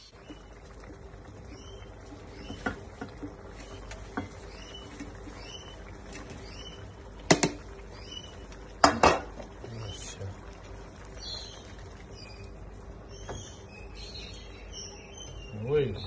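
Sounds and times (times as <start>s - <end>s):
meatballs knocking into pan: 0.2s - 5.3s, 6.0s - 9.6s.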